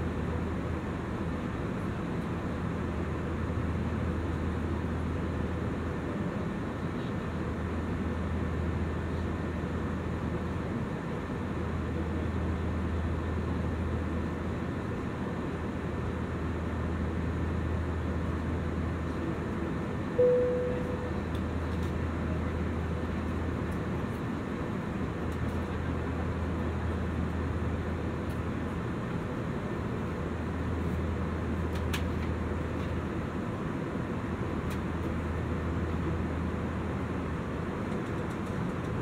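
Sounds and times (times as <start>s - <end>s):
aircraft cabin engine drone: 0.0s - 39.0s
cabin chime: 20.2s - 21.1s
low hum: 20.2s - 21.7s.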